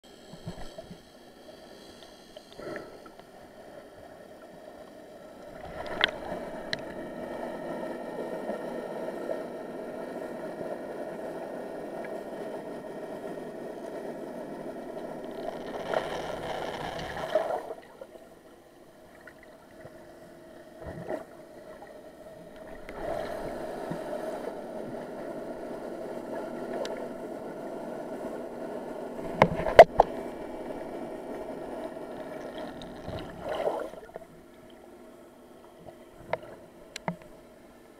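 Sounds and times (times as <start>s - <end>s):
underwater rush of water: 5.3s - 10.5s, 11.9s - 18.4s, 20.8s - 34.7s
faint clicks: 5.8s - 7.0s, 26.7s - 27.0s, 35.8s - 37.4s.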